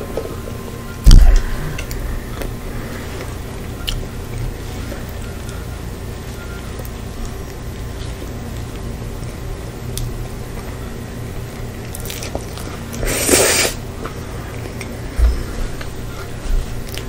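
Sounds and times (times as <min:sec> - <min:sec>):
low hum: 0:00.0 - 0:17.0
low thump: 0:01.0 - 0:01.7
wet squishy chewing: 0:11.6 - 0:13.2.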